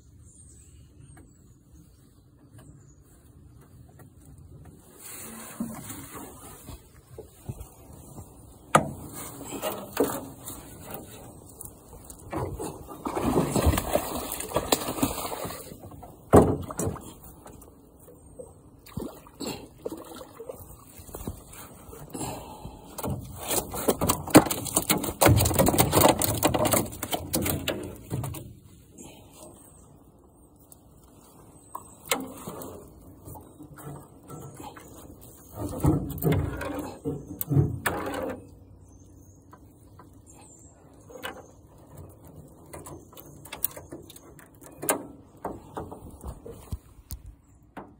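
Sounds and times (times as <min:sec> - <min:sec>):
knocks and rubbing in metal boat: 0:23.0 - 0:28.6, 0:32.1 - 0:38.7.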